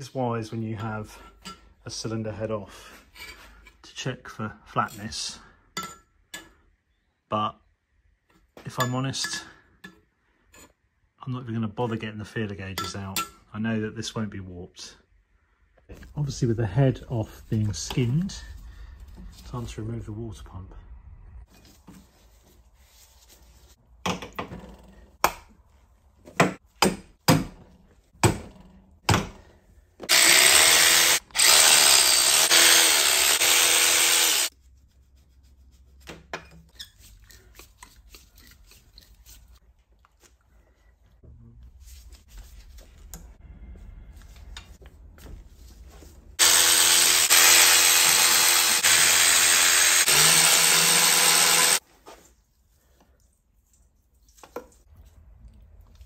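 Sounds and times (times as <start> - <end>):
power tool running: 30.1 - 34.5, 46.4 - 51.8.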